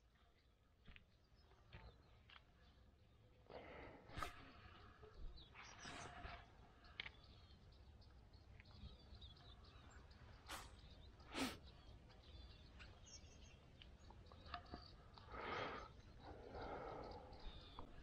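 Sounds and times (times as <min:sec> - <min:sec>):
faint bird chirps: 0:00.0 - 0:18.0
breathy exhale: 0:15.3 - 0:17.5.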